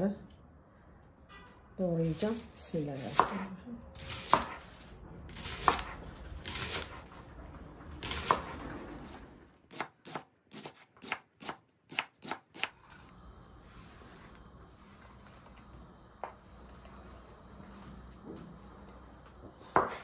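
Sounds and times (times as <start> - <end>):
knife chopping on cutting board: 3.0 - 4.6, 5.4 - 6.9, 19.6 - 20.0.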